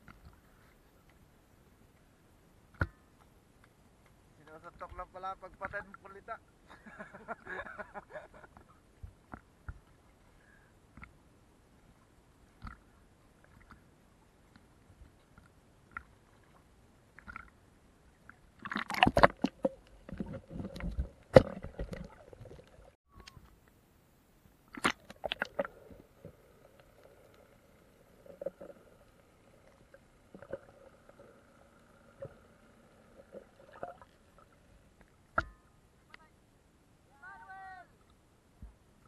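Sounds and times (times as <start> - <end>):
faint underwater hum: 0.0 - 39.0
water splashing and gurgling: 15.8 - 17.6, 18.2 - 23.0, 24.6 - 35.6.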